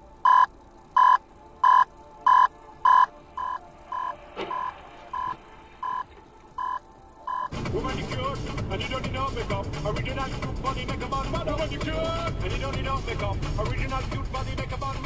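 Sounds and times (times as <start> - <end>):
electronic beeper beeping: 0.2 - 6.0, 6.6 - 7.5.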